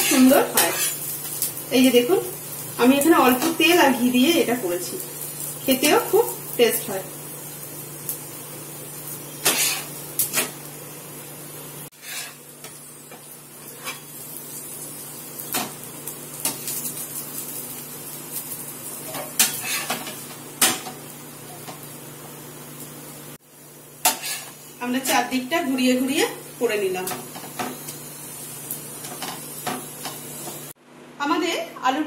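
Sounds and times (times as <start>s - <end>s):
metal spatula scraping pan: 0.0s - 1.0s, 9.4s - 10.5s, 11.9s - 12.4s, 19.2s - 20.1s, 24.1s - 24.6s
flatbread sizzling in oil: 0.0s - 30.8s.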